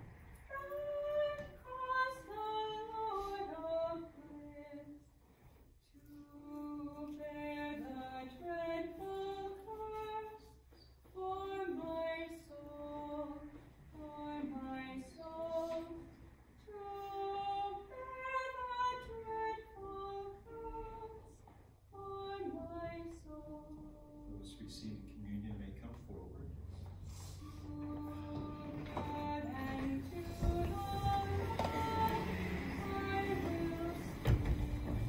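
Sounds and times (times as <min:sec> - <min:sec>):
woman singing a hymn: 0:00.0 - 0:05.1, 0:05.9 - 0:24.4, 0:27.2 - 0:35.0.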